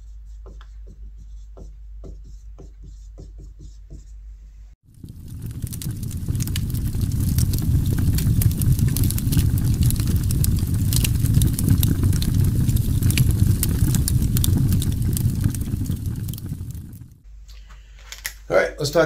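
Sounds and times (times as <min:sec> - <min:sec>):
campfire crackling: 0:04.8 - 0:17.2.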